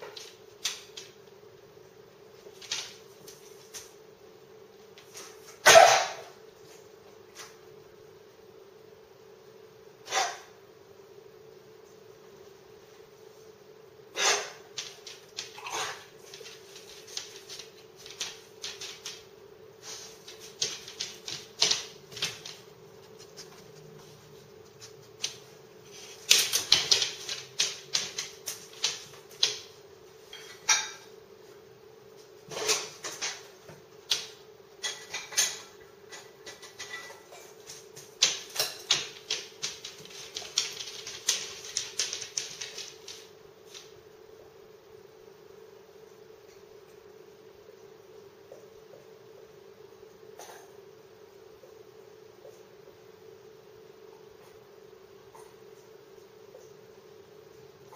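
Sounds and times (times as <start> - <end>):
dog claws clicking on hard floor: 0.0 - 1.2, 2.4 - 4.0, 14.3 - 19.3, 20.1 - 23.8, 24.8 - 29.8, 32.5 - 43.9.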